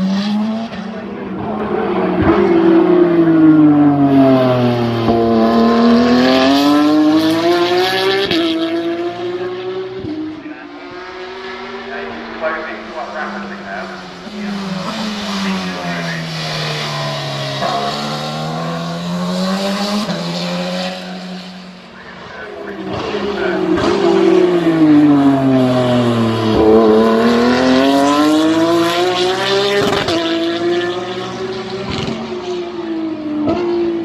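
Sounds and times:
race car engine revving: 0.0 - 34.0
race car engines: 0.0 - 34.0.

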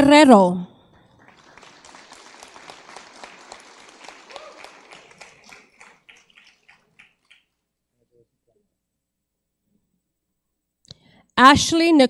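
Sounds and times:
audience applause: 1.0 - 7.5.

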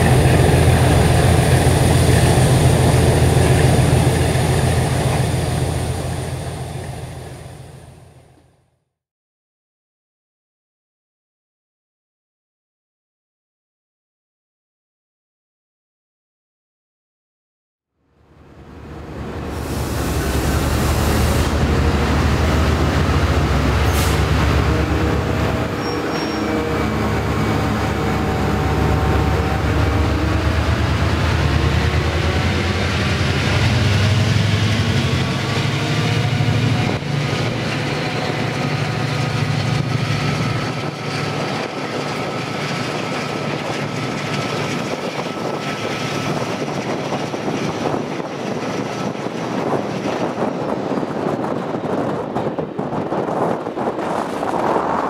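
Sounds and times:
diesel locomotive engine working hard: 0.0 - 8.2, 18.2 - 55.0.

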